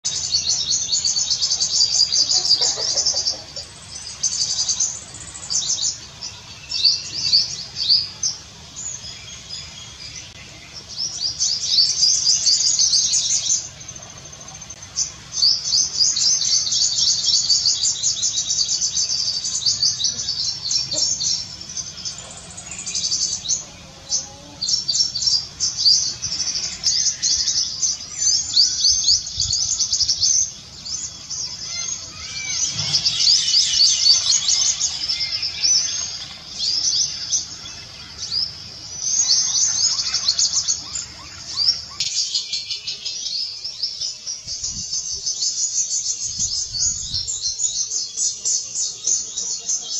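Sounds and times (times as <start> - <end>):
bird twittering: 14.6 - 43.7.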